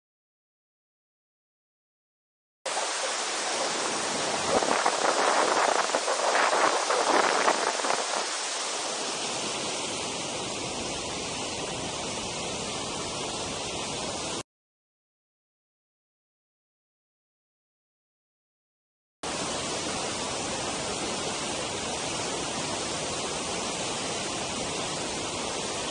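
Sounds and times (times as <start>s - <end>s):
waterfall roaring: 2.7s - 14.4s, 19.3s - 25.9s.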